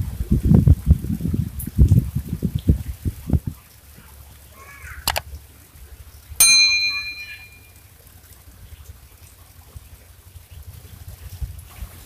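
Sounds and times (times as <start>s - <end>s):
bright bell ding: 6.4s - 7.7s.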